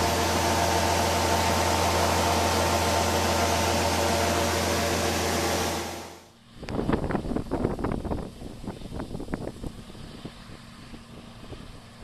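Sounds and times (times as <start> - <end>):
auger pouring grain: 0.0 - 6.2
combine harvester running: 0.0 - 12.0
wind buffeting microphone: 6.6 - 12.0.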